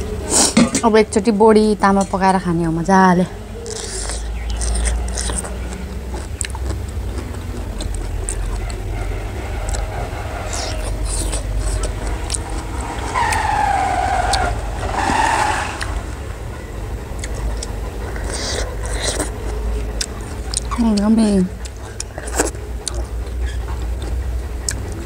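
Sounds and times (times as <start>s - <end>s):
steady low rumble: 0.0s - 25.0s
loud falling tone: 8.9s - 16.9s.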